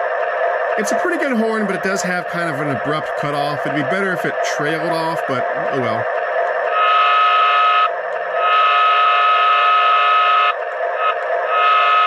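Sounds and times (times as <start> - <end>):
diesel engine idling: 0.0 - 6.8
model train horn blasts: 6.7 - 12.0.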